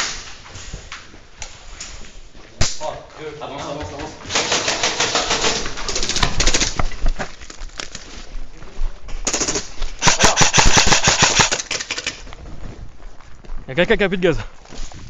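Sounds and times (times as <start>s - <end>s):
airsoft guns firing bursts: 4.3s - 6.8s, 9.3s - 12.2s
single gunshots: 10.0s - 11.7s.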